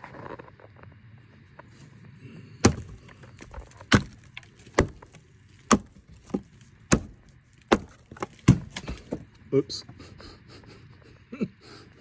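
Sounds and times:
tool striking rotted log: 0:02.6 - 0:09.3.

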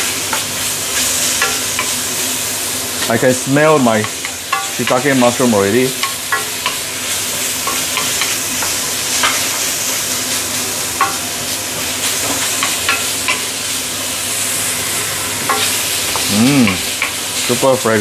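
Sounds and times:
vegetables sizzling in hot oil: 0:00.0 - 0:18.0.

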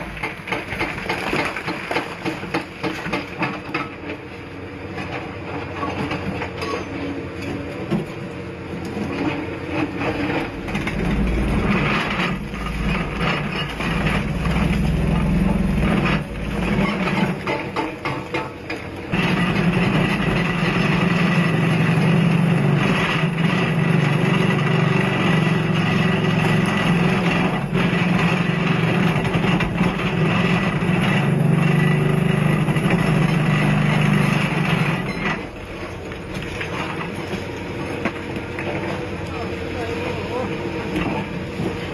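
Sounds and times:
hydraulic breaker hammering rock: 0:00.0 - 0:04.2, 0:09.0 - 0:35.6
excavator diesel engine: 0:00.0 - 0:41.9.

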